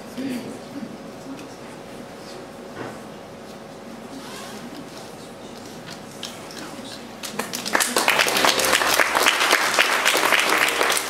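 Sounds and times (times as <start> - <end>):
room murmur: 0.0 - 11.0
audience applause: 7.2 - 11.0.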